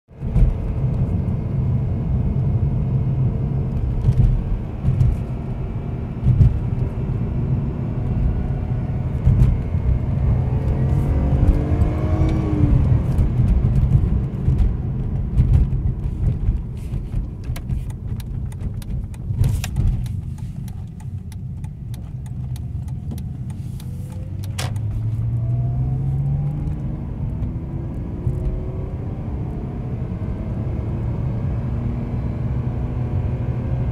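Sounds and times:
car engine revving hard: 6.2 - 14.5
sharp clicks: 17.4 - 24.9.

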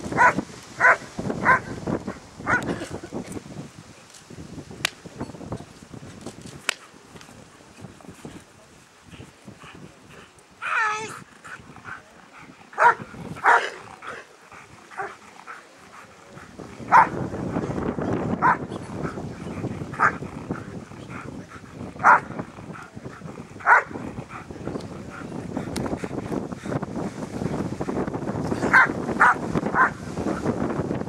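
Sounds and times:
wind on microphone: 0.0 - 31.0
dog barking: 0.2 - 1.7, 12.8 - 13.8, 16.9 - 17.2, 18.4 - 18.6, 20.0 - 20.2, 22.0 - 22.3, 23.6 - 24.0, 28.7 - 30.0.

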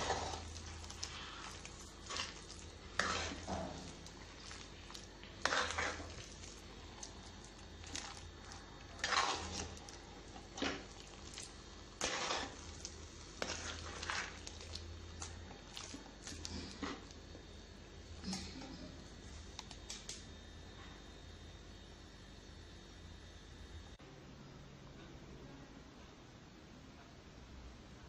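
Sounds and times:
metal spoon scraping clay pot: 0.0 - 6.4, 8.9 - 9.9, 12.0 - 14.4
faint low hum: 0.0 - 28.0.

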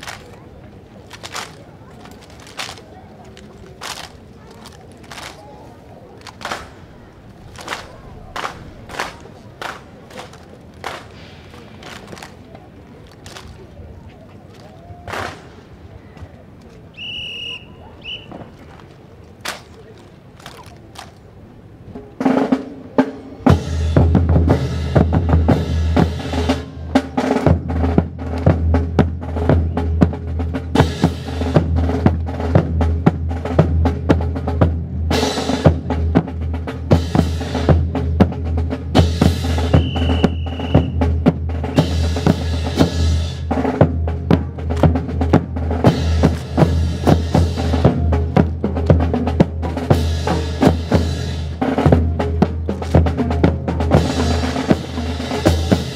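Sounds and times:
marching snare and bass drums: 1.1 - 2.9, 3.8 - 5.4, 6.2 - 12.4, 21.9 - 55.9.

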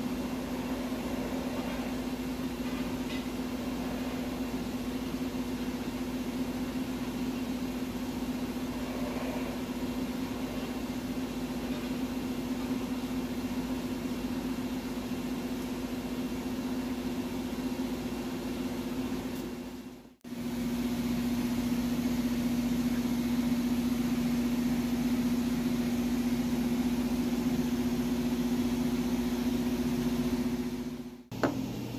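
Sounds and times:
lathe motor humming: 0.0 - 19.2.

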